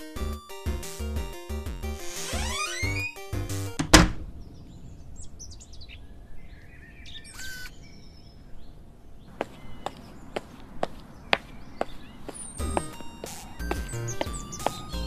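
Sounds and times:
wooden door banging shut: 0:03.8 - 0:04.3
birds chirping: 0:04.3 - 0:15.0
footsteps: 0:09.3 - 0:15.0.

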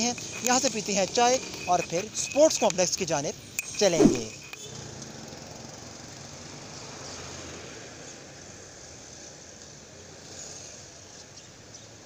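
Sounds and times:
vehicle road noise: 0:03.8 - 0:10.7.

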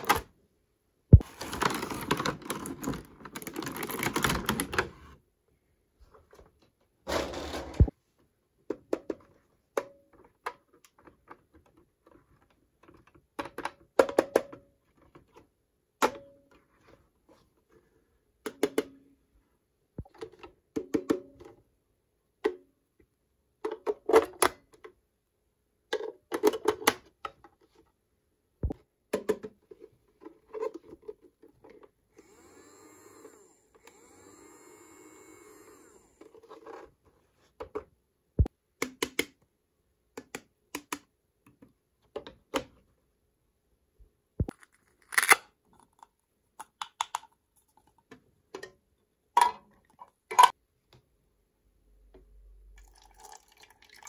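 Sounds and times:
plastic toy parts clicking: 0:44.5 - 0:47.3.

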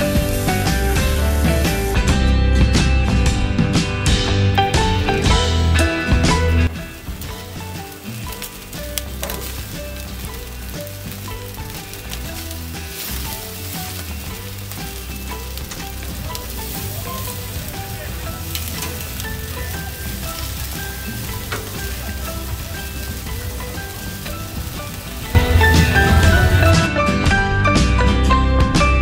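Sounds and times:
chicken wings sizzling on grill: 0:00.0 - 0:02.2, 0:04.6 - 0:26.9
metal tongs scraping grate: 0:07.2 - 0:25.3.

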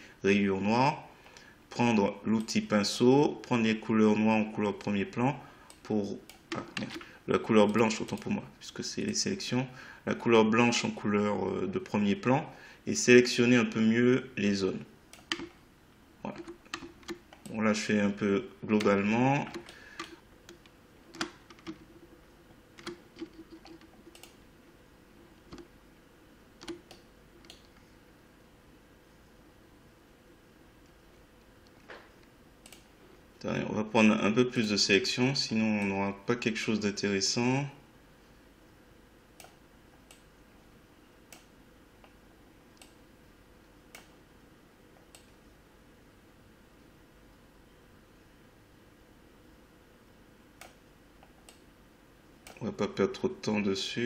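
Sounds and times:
mouse and keyboard clicks: 0:16.3 - 0:17.6, 0:22.8 - 0:24.4.

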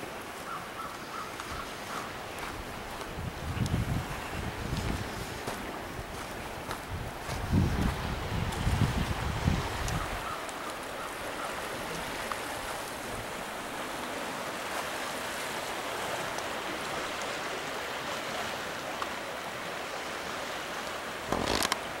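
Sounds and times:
wind buffeting microphone: 0:02.4 - 0:10.4
small waves washing over rocks: 0:07.5 - 0:22.0.

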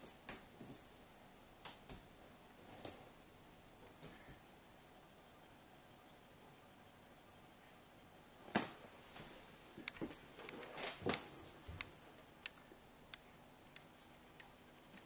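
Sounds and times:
rustling: 0:08.5 - 0:12.0.

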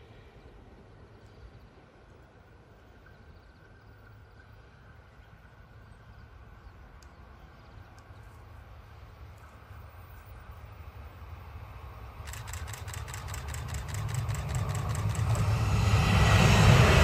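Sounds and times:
electric train approaching: 0:10.9 - 0:17.0.

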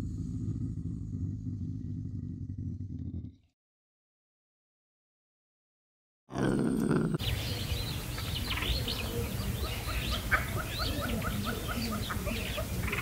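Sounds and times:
low background rumble: 0:00.0 - 0:03.4
small birds chirping: 0:06.4 - 0:13.0.

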